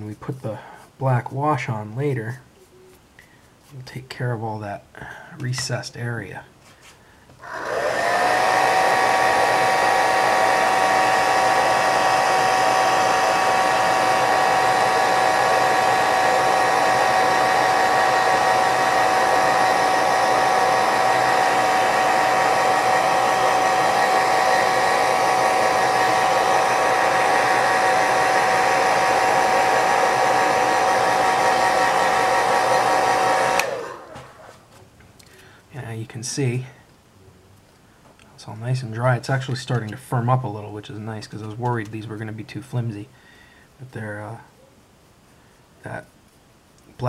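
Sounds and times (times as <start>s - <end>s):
hair dryer running: 7.4s - 34.6s.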